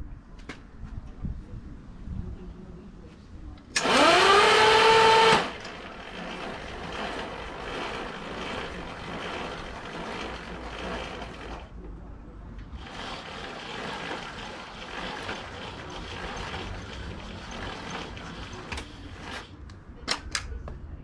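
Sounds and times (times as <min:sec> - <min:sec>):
electric starter motor whining: 0:03.8 - 0:11.7, 0:12.8 - 0:19.4
rollers and drive chain rattling: 0:03.8 - 0:11.8, 0:12.6 - 0:19.5.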